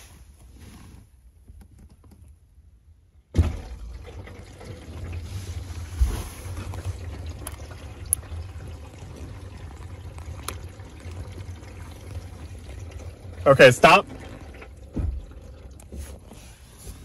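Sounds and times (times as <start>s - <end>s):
hose water spraying on car: 4.1s - 17.0s.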